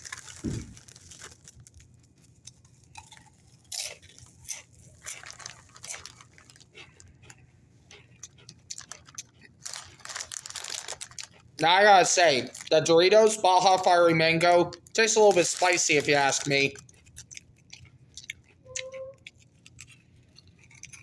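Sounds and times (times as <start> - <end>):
chips crunching when chewed: 0.0 - 21.0.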